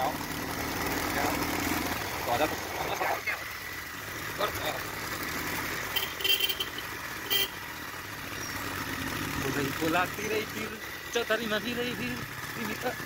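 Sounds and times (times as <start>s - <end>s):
motorbike riding: 0.0s - 13.0s
horn tooting: 5.8s - 7.7s.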